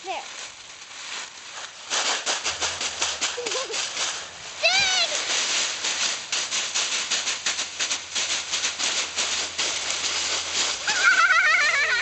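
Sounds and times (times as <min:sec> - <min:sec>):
dry leaves rustling and crackling: 0:00.0 - 0:12.0
high-pitched voice crying out: 0:10.9 - 0:12.0.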